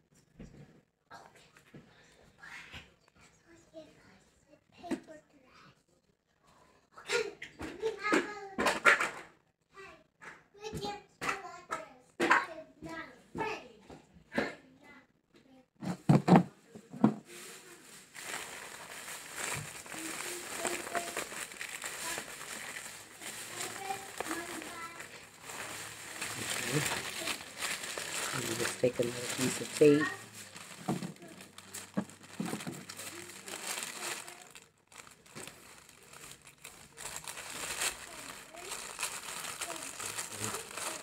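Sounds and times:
plastic wrap crinkling: 17.3s - 41.0s.

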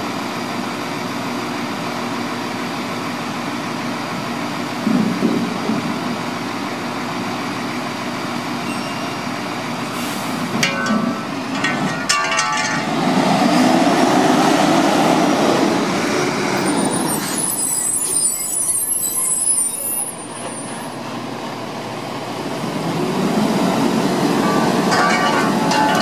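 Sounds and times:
high brake squeal: 8.6s - 10.6s, 16.4s - 21.1s
truck diesel engine running: 20.2s - 26.0s.

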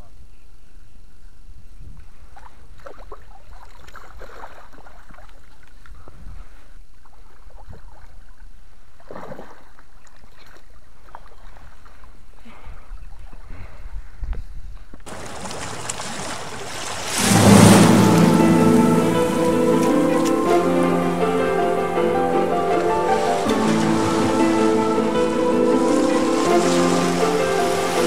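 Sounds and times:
fish thrashing in a net: 15.1s - 17.2s
loud rain-like hiss: 15.1s - 28.0s
water splashing and sloshing: 15.1s - 28.0s
music: 17.2s - 28.0s.

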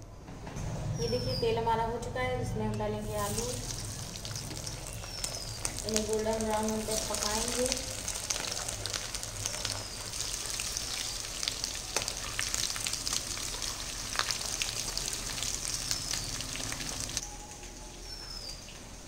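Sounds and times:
hot oil sizzling and popping: 3.0s - 17.2s.

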